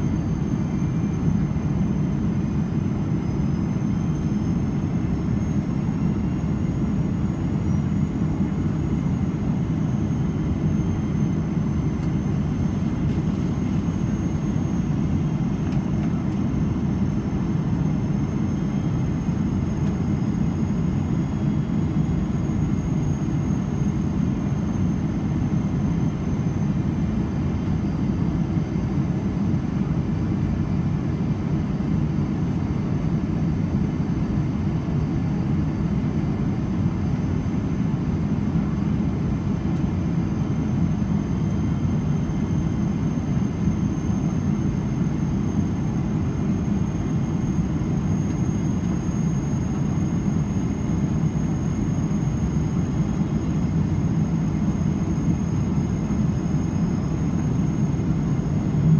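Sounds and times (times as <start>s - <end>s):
thin high whine: 40.4s - 58.9s
airplane cabin rumble: 44.4s - 58.9s.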